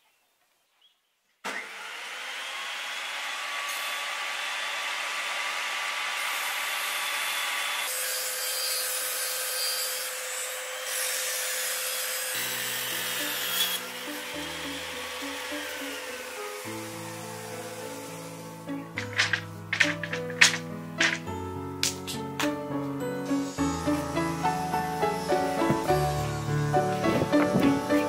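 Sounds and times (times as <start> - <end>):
table saw ripping wood: 1.4 - 22.3, 23.2 - 28.0
music: 12.3 - 28.0.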